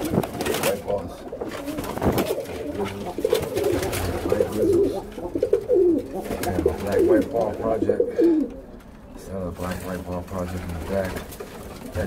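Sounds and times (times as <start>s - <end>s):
pigeons cooing: 0.0s - 9.2s.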